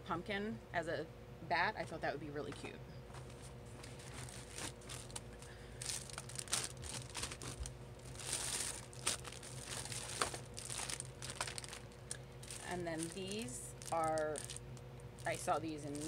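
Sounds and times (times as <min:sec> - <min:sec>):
plastic bag crinkling: 0:03.3 - 0:16.0.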